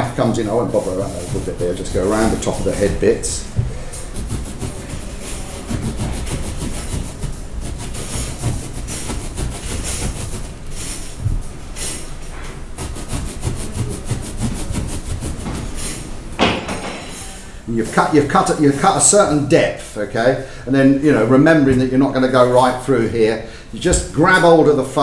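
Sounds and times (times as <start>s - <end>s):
serrated knife sawing foam: 0.0s - 11.2s, 12.7s - 15.8s.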